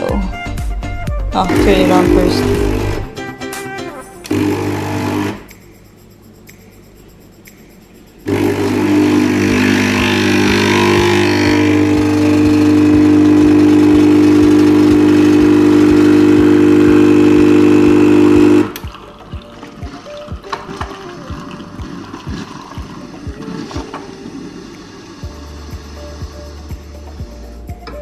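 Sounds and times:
espresso machine pump buzzing hum: 0:01.4 - 0:03.1, 0:04.3 - 0:05.5, 0:08.2 - 0:19.0.

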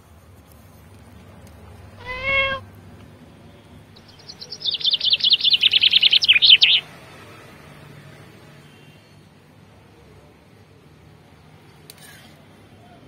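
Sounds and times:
songbird trilling: 0:02.0 - 0:02.6, 0:04.0 - 0:06.8
cat meowing: 0:02.0 - 0:02.7.

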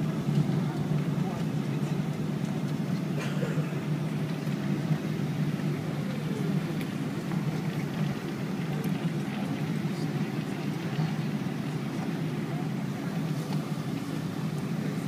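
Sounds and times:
airliner cabin rumble: 0:00.0 - 0:15.0.

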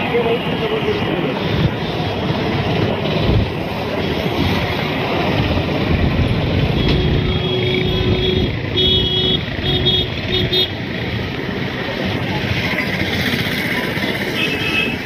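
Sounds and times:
road traffic noise: 0:00.0 - 0:15.0
wind buffeting microphone: 0:00.9 - 0:08.7
vehicle horn: 0:06.8 - 0:10.8, 0:14.4 - 0:15.0.

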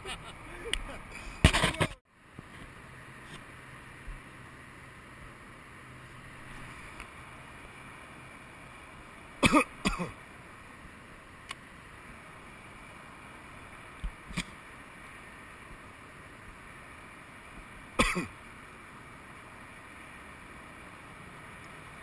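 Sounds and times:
low background hiss: 0:00.0 - 0:22.0
person coughing: 0:09.4 - 0:10.1, 0:18.0 - 0:18.3.

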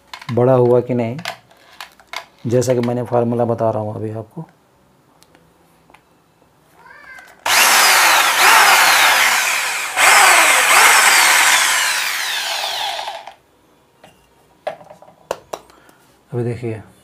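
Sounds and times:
electric drill boring into wood: 0:07.4 - 0:13.4.

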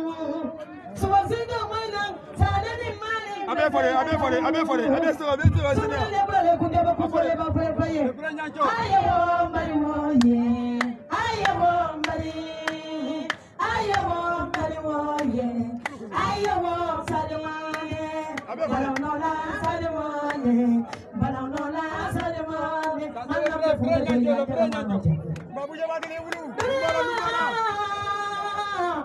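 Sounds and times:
woman singing into a microphone: 0:00.0 - 0:03.5, 0:05.8 - 0:25.2, 0:26.6 - 0:29.0
sharp claps: 0:10.2 - 0:27.5.

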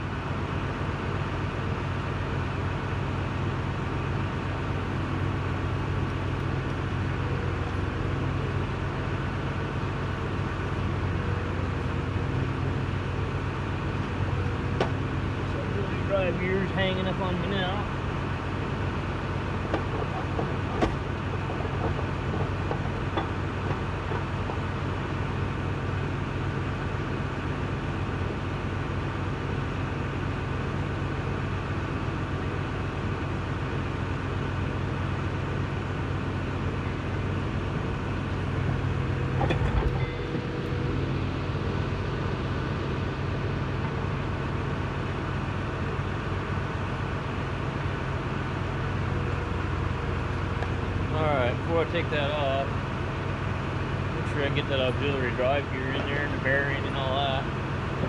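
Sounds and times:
low machine hum: 0:00.0 - 0:58.0
metal knocks: 0:19.6 - 0:24.7.

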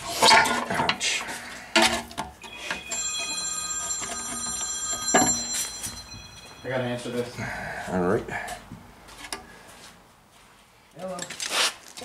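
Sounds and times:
high ringing tones: 0:02.4 - 0:08.0.

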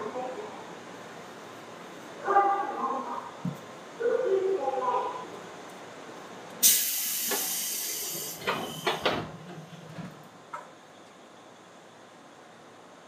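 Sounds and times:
loud hiss of air: 0:06.6 - 0:09.2.

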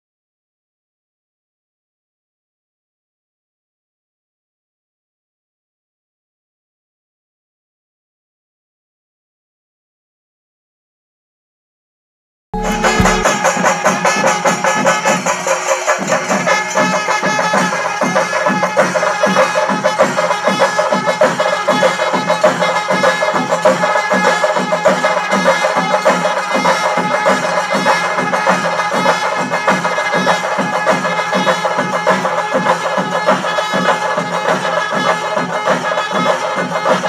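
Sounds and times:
steady held tone: 0:12.6 - 0:13.8
drums beating fast rhythm: 0:12.6 - 0:37.0.

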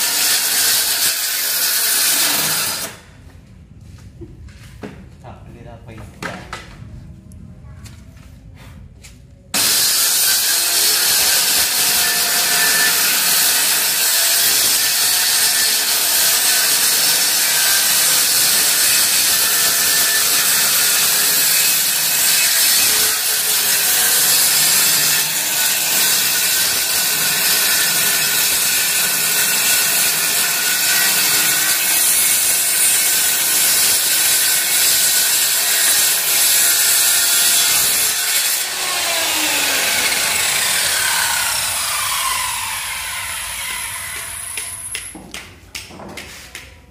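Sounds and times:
circular saw cutting wood: 0:00.0 - 0:03.0, 0:09.6 - 0:45.1.

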